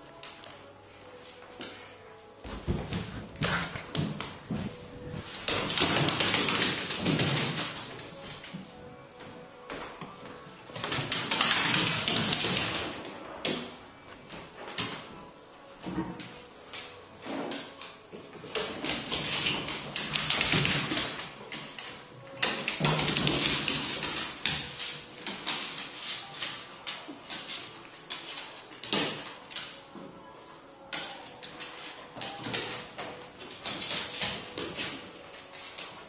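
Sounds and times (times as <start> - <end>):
thumps and scuffling: 2.4 - 6.3.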